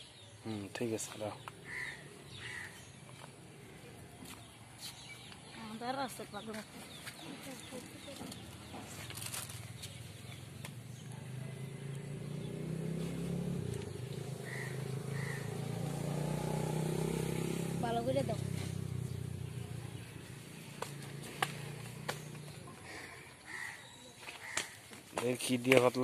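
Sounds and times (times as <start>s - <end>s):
faint outdoor background noise: 0.0s - 26.0s
vehicle engine running: 6.2s - 23.2s.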